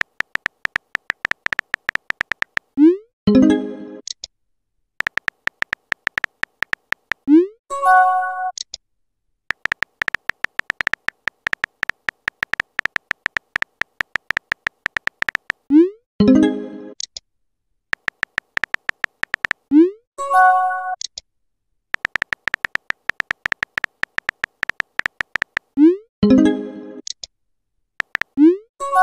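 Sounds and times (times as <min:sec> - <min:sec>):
keyboard tap clicks: 0:00.0 - 0:02.8, 0:05.0 - 0:07.3, 0:09.5 - 0:15.6, 0:18.0 - 0:19.6, 0:22.0 - 0:25.8, 0:28.0 - 0:28.4.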